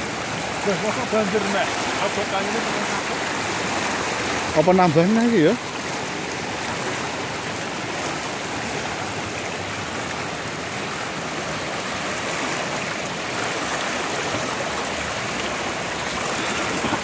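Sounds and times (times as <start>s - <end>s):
river water rushing: 0.0s - 17.0s.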